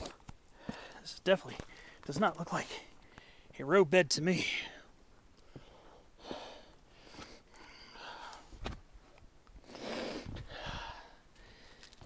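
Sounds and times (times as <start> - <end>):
person breathing hard: 0.5 - 1.0, 5.4 - 8.6, 9.6 - 12.0.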